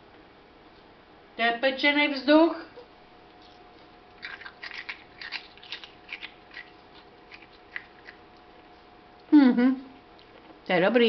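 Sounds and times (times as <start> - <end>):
person crunching snacks: 4.2 - 8.2.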